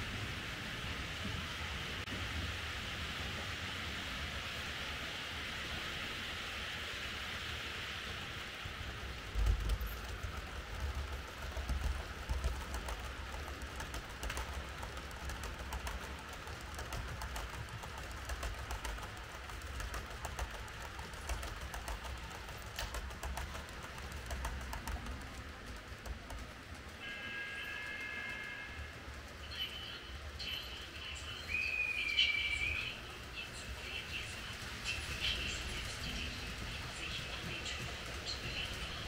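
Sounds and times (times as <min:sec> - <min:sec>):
model train whirring: 0:00.7 - 0:39.0
wheels clicking over rail joints: 0:08.1 - 0:39.0.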